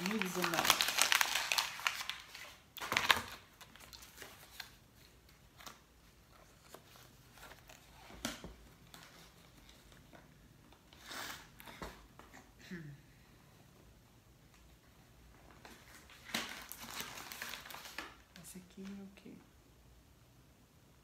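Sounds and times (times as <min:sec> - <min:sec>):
paper rustling: 0:00.0 - 0:10.2, 0:15.5 - 0:18.2.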